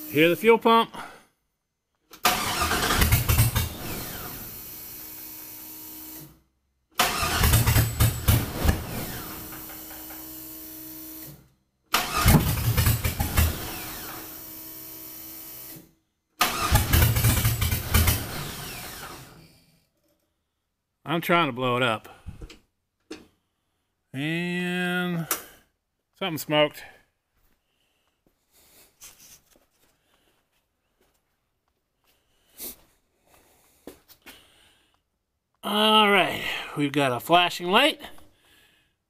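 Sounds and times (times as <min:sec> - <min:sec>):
engine starter cranking: 0:02.1 - 0:04.4, 0:07.0 - 0:10.4, 0:11.2 - 0:14.3, 0:16.4 - 0:19.4.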